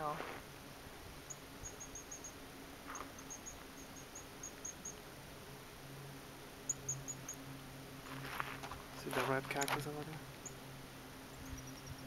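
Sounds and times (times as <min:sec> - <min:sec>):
small animal high-pitched chirps: 0:01.3 - 0:05.0.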